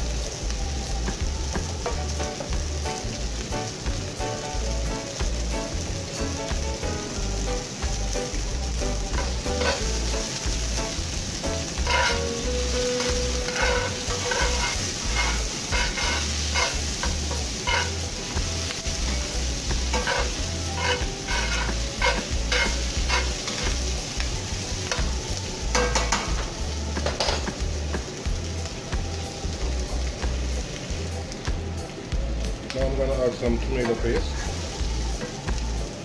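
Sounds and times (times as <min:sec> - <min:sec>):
onions sizzling in oil: 0:00.0 - 0:36.0
utensil scraping a pan: 0:09.1 - 0:10.2, 0:11.6 - 0:24.0.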